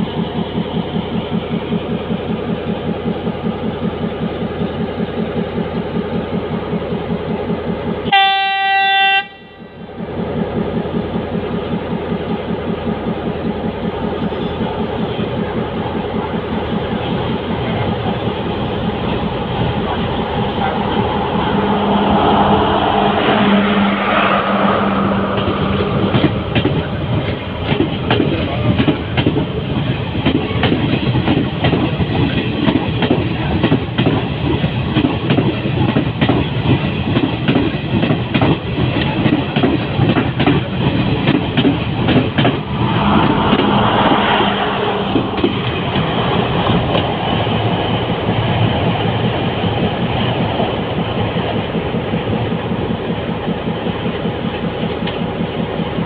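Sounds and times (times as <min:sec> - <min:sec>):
train engine drone: 0:00.0 - 0:56.0
train wheels clattering over rail joints: 0:25.4 - 0:42.7.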